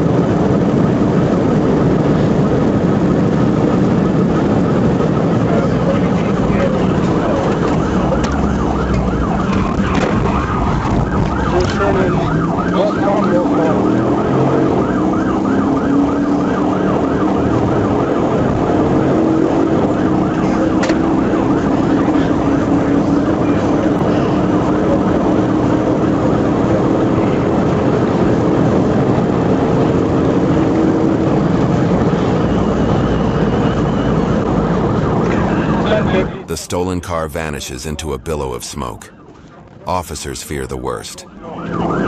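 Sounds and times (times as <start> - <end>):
road noise: 0.0 - 36.5
police siren rising and falling: 0.2 - 23.9.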